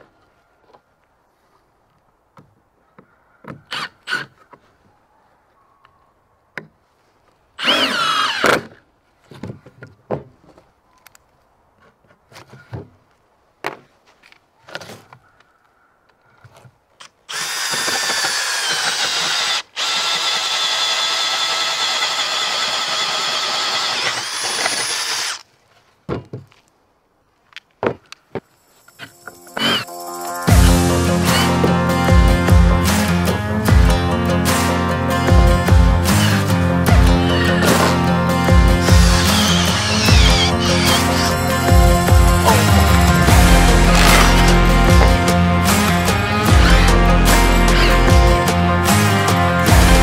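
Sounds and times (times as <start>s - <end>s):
cordless drill boring through wood: 7.6s - 8.7s, 17.3s - 25.4s, 38.8s - 41.4s, 43.9s - 44.5s.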